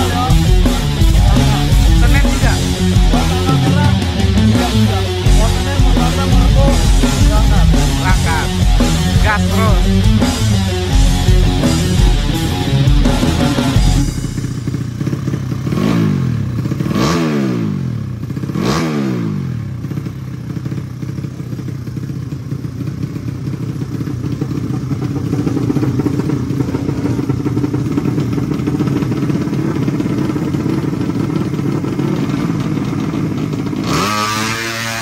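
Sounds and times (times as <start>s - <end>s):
motorcycle engine revving and idling: 0.0s - 35.0s.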